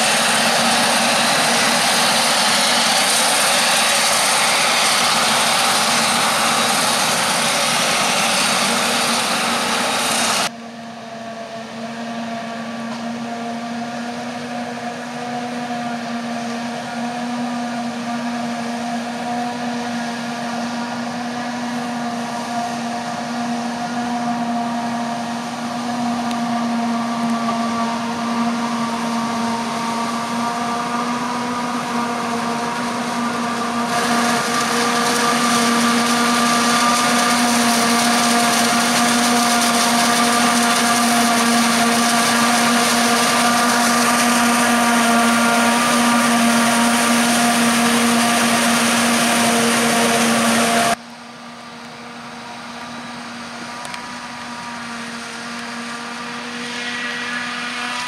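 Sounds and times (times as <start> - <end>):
hiss of chopped crop blowing: 0.0 - 10.5, 32.5 - 51.0
forage harvester whine: 0.0 - 58.0
tractor running: 0.0 - 58.0.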